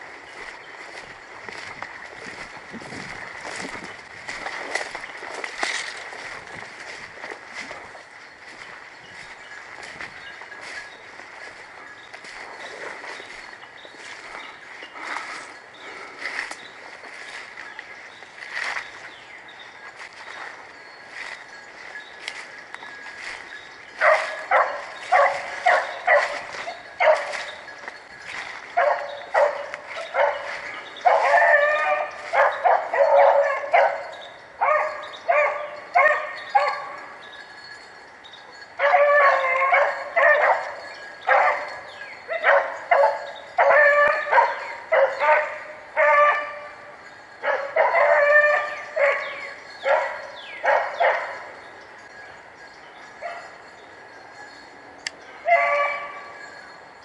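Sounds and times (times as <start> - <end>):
dogs baying: 18.7 - 37.3, 38.5 - 52.4, 53.0 - 54.6, 55.4 - 56.8.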